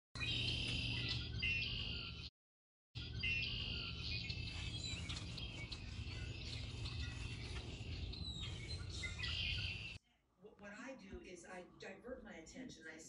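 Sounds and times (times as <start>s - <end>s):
small birds chirping: 0.2s - 2.3s, 3.0s - 10.0s.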